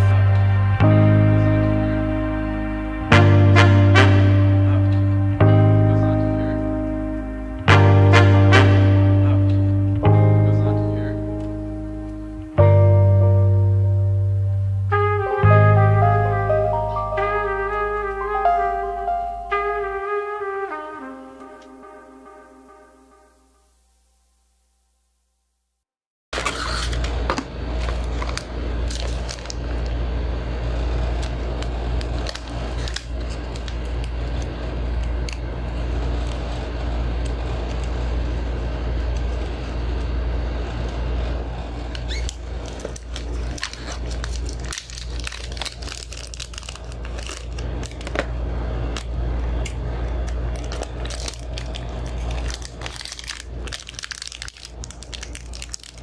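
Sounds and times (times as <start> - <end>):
steady low hum: 0.0 - 24.1, 26.6 - 56.0
paper and plastic bag rustling: 42.6 - 48.2, 50.5 - 56.0.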